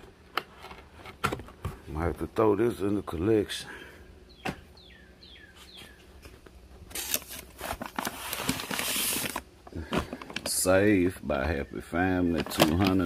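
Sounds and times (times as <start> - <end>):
bird chirping: 4.2 - 6.2
packaging rustling and crinkling: 6.9 - 10.7, 12.2 - 13.0.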